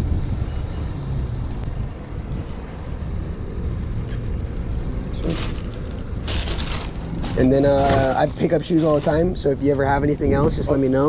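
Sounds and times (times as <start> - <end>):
low vehicle rumble: 0.0 - 11.0.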